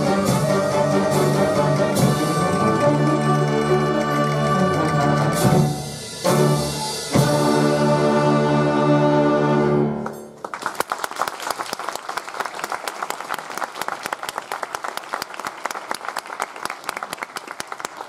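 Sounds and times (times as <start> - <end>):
audience applause: 2.4 - 5.7, 10.4 - 18.0.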